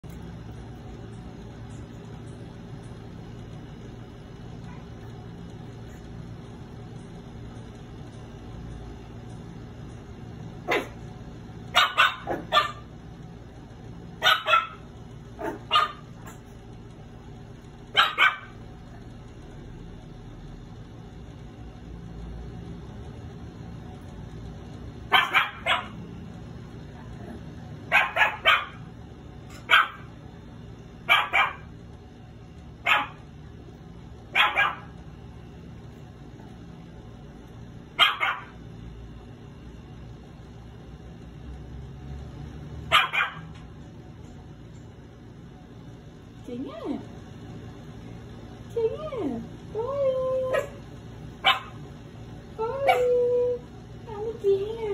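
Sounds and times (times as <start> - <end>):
puppy barking: 10.6 - 11.0, 11.7 - 12.9, 14.2 - 16.4, 17.9 - 18.6, 25.1 - 26.0, 27.9 - 28.9, 29.5 - 30.1, 31.0 - 31.7, 32.8 - 33.2, 34.3 - 35.0, 38.0 - 38.6, 42.9 - 43.6, 51.4 - 51.8, 52.9 - 53.1.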